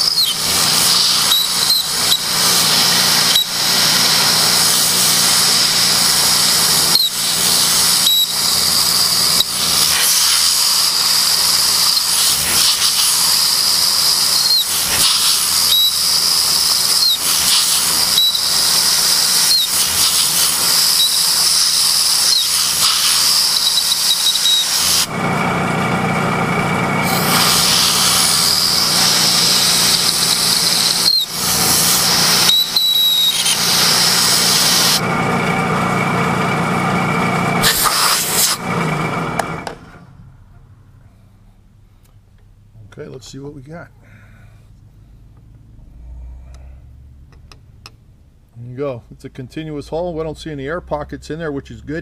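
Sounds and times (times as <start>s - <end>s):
short squeals of cutter: 0.0s - 25.1s, 27.0s - 35.0s, 37.6s - 38.6s
milling machine cutting aluminum: 0.0s - 25.3s, 27.0s - 35.1s, 37.6s - 38.7s.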